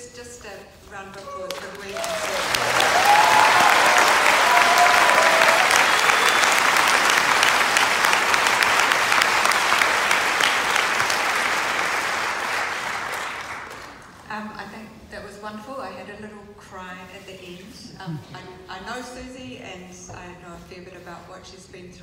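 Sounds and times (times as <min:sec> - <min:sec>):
audience applauding: 0:01.5 - 0:14.1.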